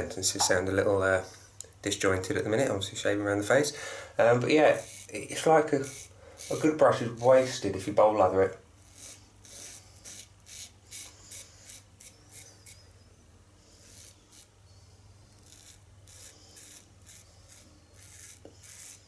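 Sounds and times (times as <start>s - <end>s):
razor scraping beard stubble: 4.3s - 13.0s, 13.6s - 19.0s.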